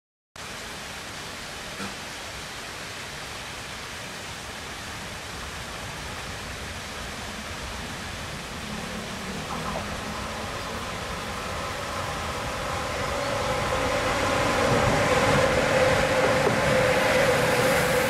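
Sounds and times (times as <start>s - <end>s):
steady rushing noise: 5.6s - 18.0s
distant freight train rumble: 6.0s - 18.0s.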